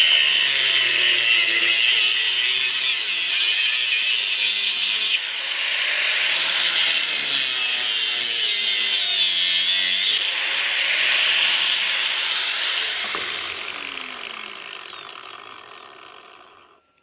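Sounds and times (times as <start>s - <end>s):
angle grinder cutting rubber: 0.0s - 17.0s.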